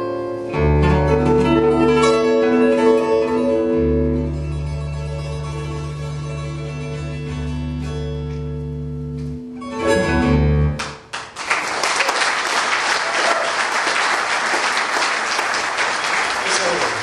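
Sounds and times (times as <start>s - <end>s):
acoustic guitar chords: 0.0s - 11.2s
audience applause: 10.8s - 17.0s.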